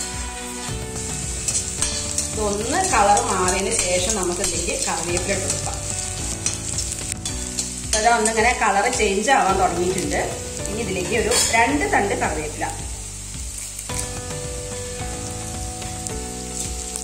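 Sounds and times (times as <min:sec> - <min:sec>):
metal spoon scraping iron pan: 0:00.0 - 0:08.4, 0:11.2 - 0:11.6
shallots sizzling in hot oil: 0:00.0 - 0:17.0.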